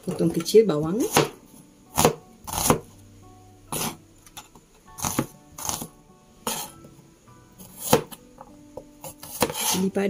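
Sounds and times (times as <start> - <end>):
knife chopping on cutting board: 1.0 - 2.9, 3.7 - 4.0, 5.0 - 6.7, 7.6 - 8.2, 9.0 - 9.8.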